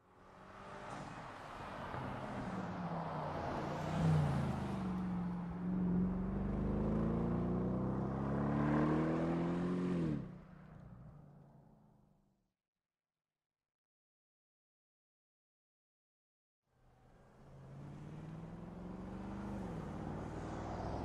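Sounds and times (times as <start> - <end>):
car engine accelerating: 5.7 - 10.3, 17.3 - 21.0.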